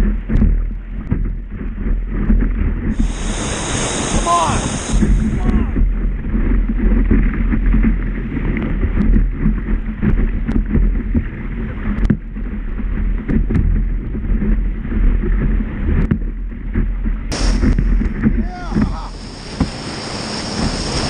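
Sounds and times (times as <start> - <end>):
whitewater roaring: 2.6 - 10.3, 17.3 - 21.0.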